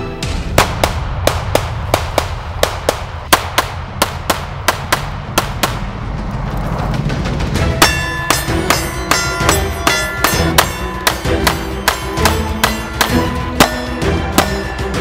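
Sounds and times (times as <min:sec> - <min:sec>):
pistol shots: 0:00.6 - 0:05.8.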